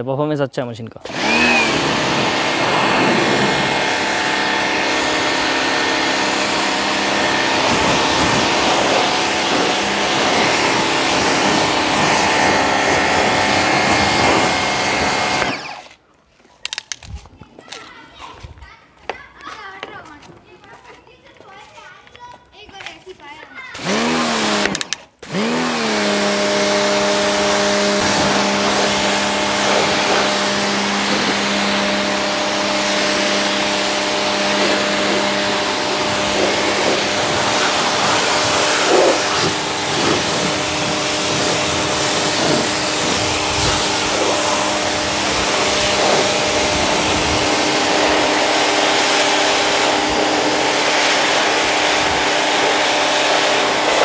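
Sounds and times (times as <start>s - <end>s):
pressure washer motor humming: 1.0s - 16.0s, 23.8s - 54.0s
water jet hissing: 1.1s - 15.9s, 26.3s - 54.0s.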